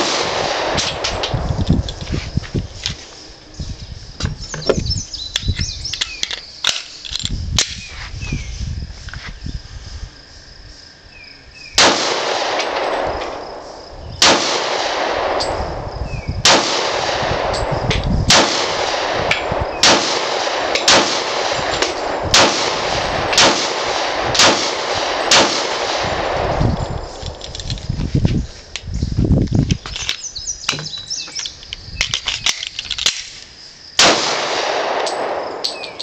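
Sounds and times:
pistol shots echoing: 0.0s - 1.4s, 11.8s - 15.6s, 16.4s - 17.7s, 18.3s - 27.4s, 34.0s - 36.0s.

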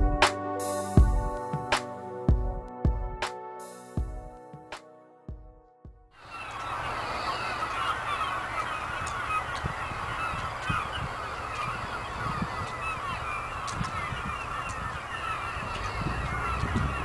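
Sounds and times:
flock of birds calling: 6.2s - 17.0s.

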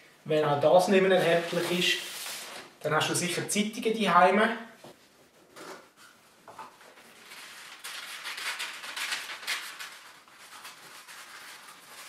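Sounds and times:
newspaper rustling and crinkling: 1.0s - 2.8s, 6.7s - 12.0s.

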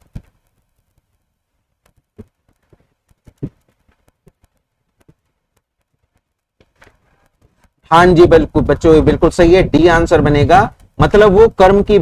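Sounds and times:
soft clicks and taps: 1.8s - 7.8s.

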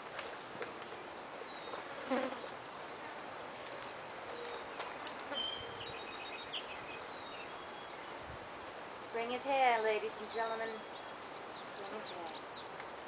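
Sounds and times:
insect buzzing past: 2.0s - 2.5s
high bird chirps: 4.0s - 8.2s.

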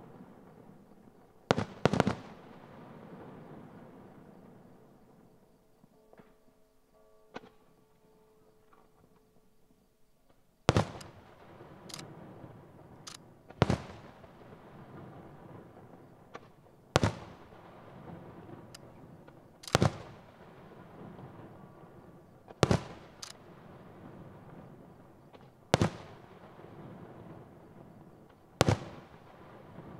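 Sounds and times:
fireworks booming with echo: 0.0s - 5.4s, 10.7s - 29.9s
firework cracks: 1.5s - 2.7s, 10.7s - 21.4s, 22.5s - 24.7s, 25.3s - 27.1s, 28.2s - 29.9s.

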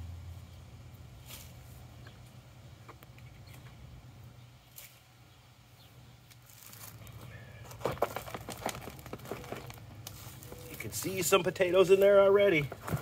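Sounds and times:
soil rustling and clattering: 6.3s - 13.0s
plastic pot crinkling and knocking: 6.4s - 11.2s, 12.5s - 13.0s.

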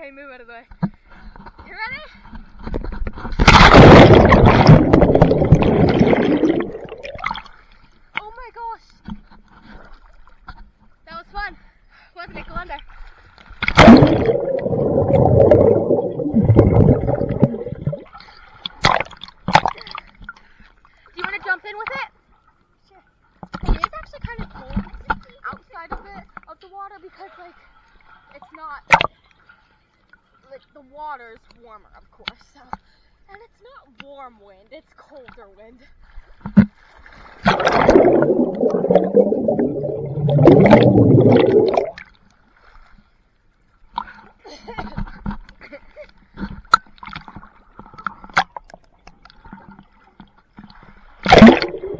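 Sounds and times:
pool water splashing and gurgling: 3.1s - 8.3s, 12.3s - 22.6s, 23.6s - 29.6s, 35.2s - 51.9s
muffled underwater bubbling: 3.5s - 7.5s, 13.6s - 18.2s, 37.4s - 42.1s, 51.2s - 51.9s.

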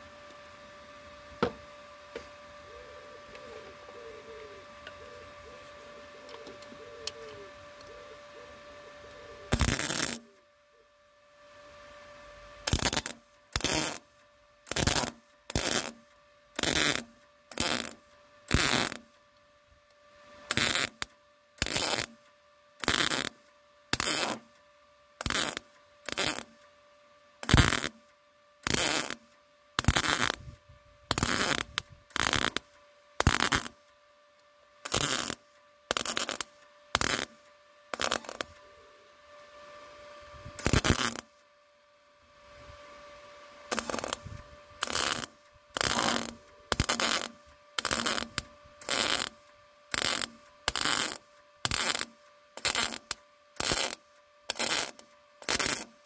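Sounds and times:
faint steady hum: 0.0s - 56.0s
welding arc crackling: 9.5s - 10.3s, 12.6s - 16.0s, 16.6s - 19.1s, 20.5s - 22.2s, 22.8s - 24.5s, 25.2s - 26.6s, 27.4s - 28.0s, 28.6s - 30.4s, 31.1s - 33.8s, 34.8s - 38.6s, 40.6s - 41.3s, 43.7s - 44.2s, 44.8s - 56.0s.

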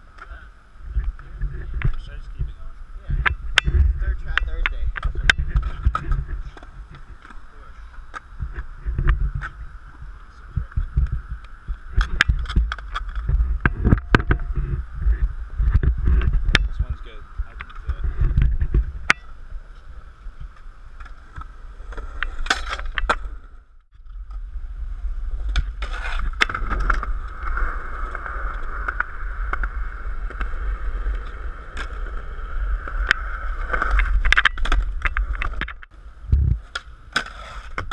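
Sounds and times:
skateboard wheels rolling on concrete: 0.0s - 37.9s
skateboard clacking on ground: 25.5s - 35.9s.

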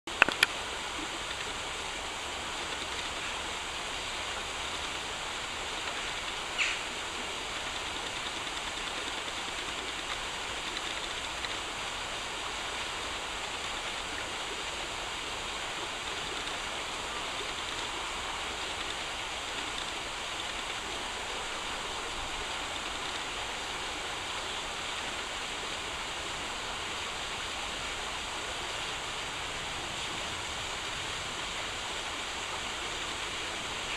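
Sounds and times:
sharp clicks: 0.1s - 0.6s
river rushing over stones: 0.1s - 33.9s.

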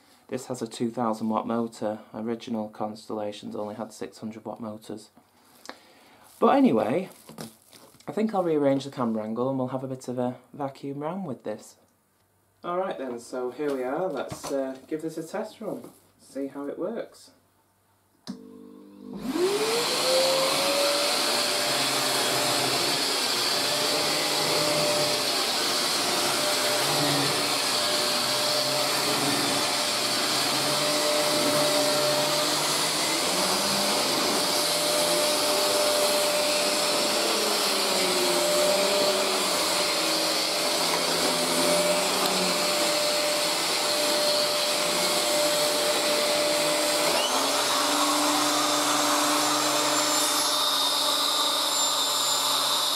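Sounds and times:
vacuum cleaner motor whine: 18.3s - 52.9s
vacuum nozzle pushed over carpet: 19.1s - 52.9s.

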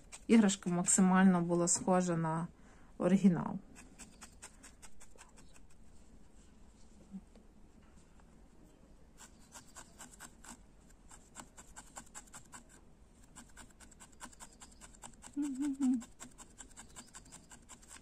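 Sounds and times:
felting needle poking wool: 0.0s - 1.9s, 3.6s - 6.1s, 9.2s - 18.0s
person humming: 15.2s - 16.2s.

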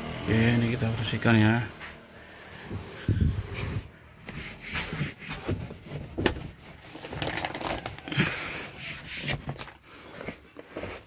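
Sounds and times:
rag wiping and rubbing: 2.8s - 7.2s.

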